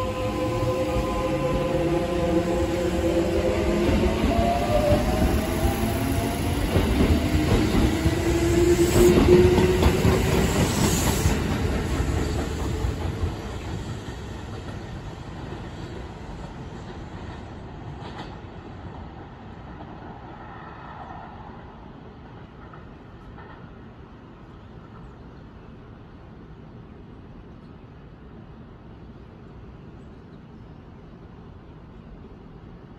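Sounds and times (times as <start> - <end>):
electric train pulling away: 0.0 - 16.3.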